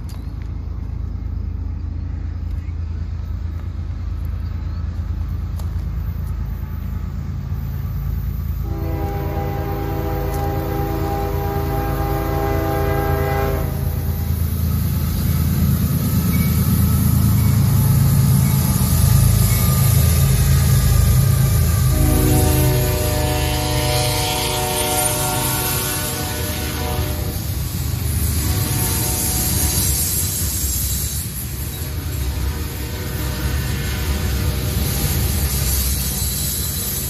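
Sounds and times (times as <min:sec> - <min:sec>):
diesel locomotive engine rumble: 0:00.0 - 0:37.0
locomotive horn blast: 0:08.6 - 0:14.3, 0:21.6 - 0:27.6, 0:28.4 - 0:29.9, 0:31.8 - 0:34.8.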